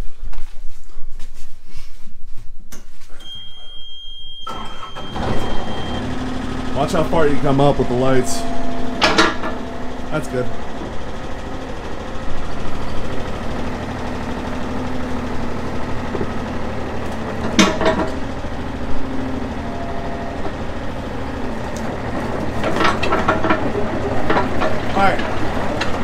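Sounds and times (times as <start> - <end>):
excavator diesel engine running: 4.5 - 26.0
metallic clanks: 6.8 - 13.6.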